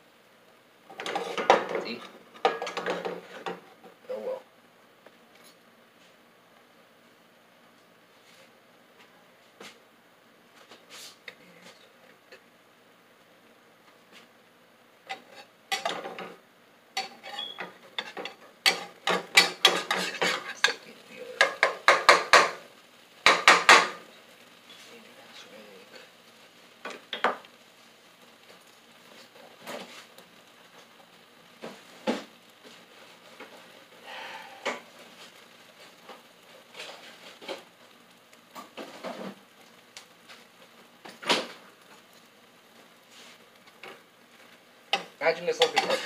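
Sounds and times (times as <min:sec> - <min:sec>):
batter stirred in a bowl: 0:17.0 - 0:22.4, 0:44.9 - 0:46.0.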